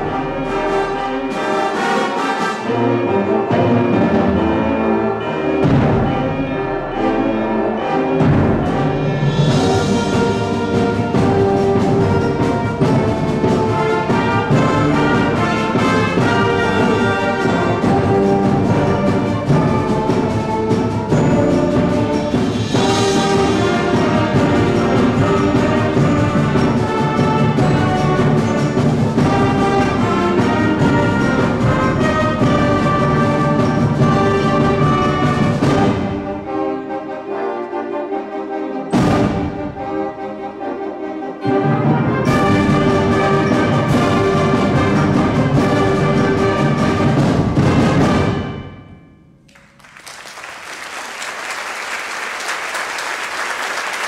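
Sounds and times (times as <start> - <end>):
concert band playing: 0.0 - 37.5, 38.9 - 40.6, 41.4 - 54.0
audience applause: 49.5 - 54.0.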